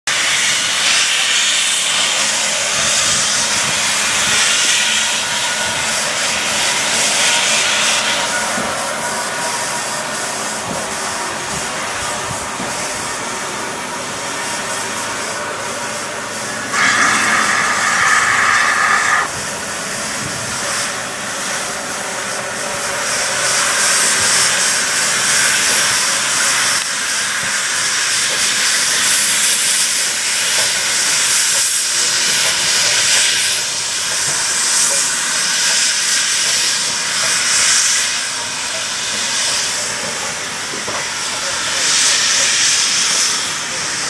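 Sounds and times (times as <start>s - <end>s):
steam hissing: 0.1s - 44.0s
steam locomotive whistle: 16.5s - 19.4s.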